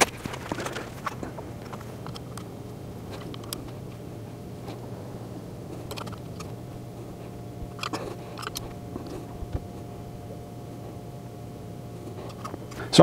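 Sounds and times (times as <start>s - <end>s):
steady low hum: 0.0s - 13.0s
hand tool turning screws: 7.8s - 9.2s.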